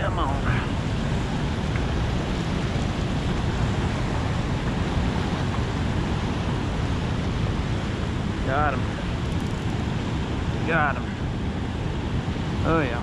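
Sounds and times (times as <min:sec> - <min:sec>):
water roaring from spillway: 0:00.0 - 0:13.0.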